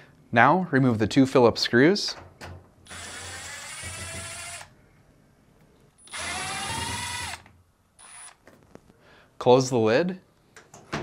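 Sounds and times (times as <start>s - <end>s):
electric drill-driver whining: 2.9s - 4.7s, 6.0s - 8.4s.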